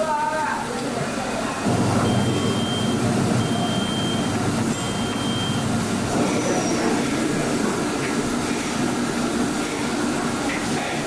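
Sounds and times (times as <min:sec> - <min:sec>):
machinery hum and rumble: 0:01.6 - 0:11.0
high-pitched beeps: 0:02.0 - 0:05.6.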